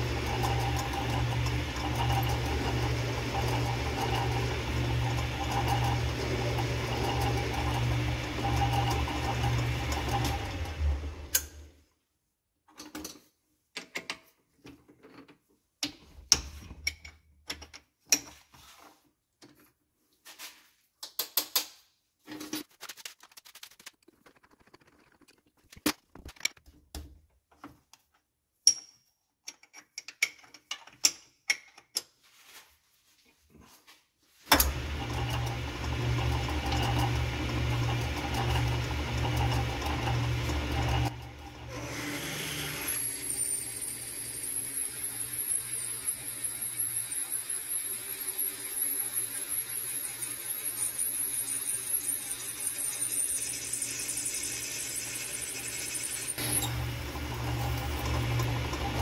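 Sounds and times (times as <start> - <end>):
metal lathe humming: 0.0 - 11.4, 34.6 - 59.0.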